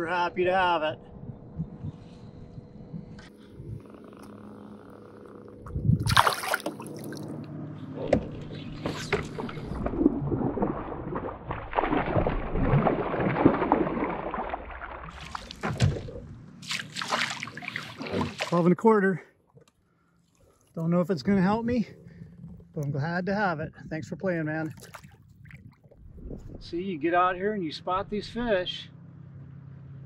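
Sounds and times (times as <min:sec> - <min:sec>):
fish splashing in water: 0:06.0 - 0:07.4, 0:08.9 - 0:18.6.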